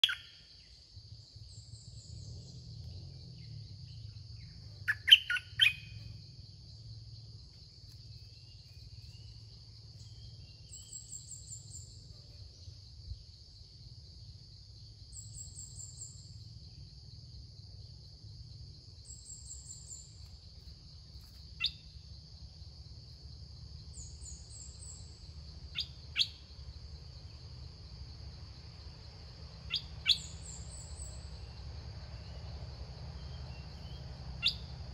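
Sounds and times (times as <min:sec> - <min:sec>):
birds calling in sharp notes: 0:00.0 - 0:00.4, 0:03.9 - 0:06.2, 0:33.0 - 0:34.9
high insect drone: 0:00.0 - 0:34.9.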